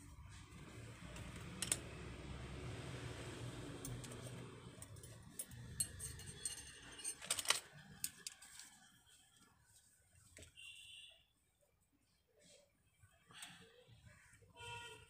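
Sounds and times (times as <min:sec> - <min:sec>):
metal hand tools clinking: 0:04.0 - 0:08.3.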